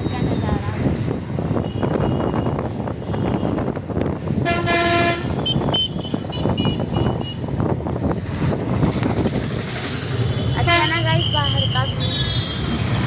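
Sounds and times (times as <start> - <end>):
bus engine and road noise: 0.0 - 13.0
vehicle horn blaring: 4.4 - 7.4.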